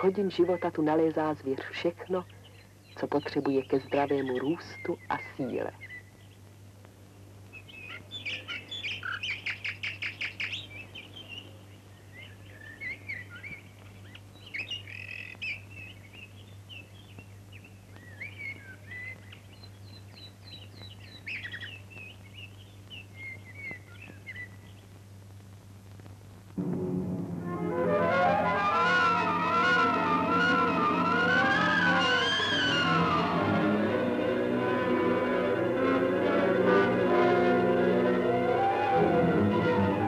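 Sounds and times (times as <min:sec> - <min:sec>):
songbirds singing: 0:00.0 - 0:25.0.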